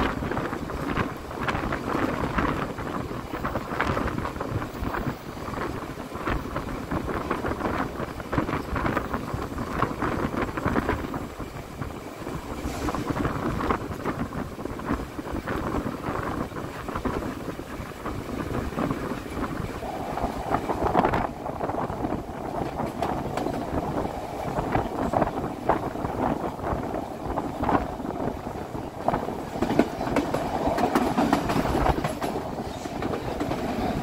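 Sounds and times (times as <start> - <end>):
train rumbling along track: 0.0 - 34.0
wind gusting on microphone: 0.0 - 34.0.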